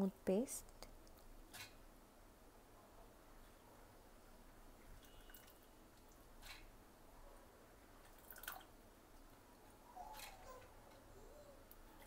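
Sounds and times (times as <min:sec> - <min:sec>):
wet squelches and drips: 0:04.8 - 0:06.6, 0:08.0 - 0:09.7.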